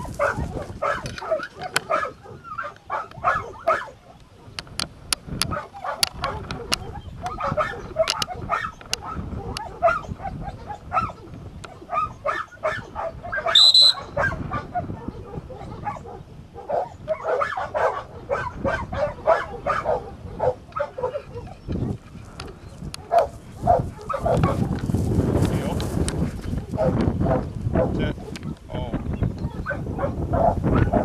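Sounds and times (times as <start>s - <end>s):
dogs barking: 0.0s - 4.6s, 5.4s - 24.8s, 26.4s - 28.6s, 29.5s - 31.0s
short high whistle blast: 13.5s - 14.1s.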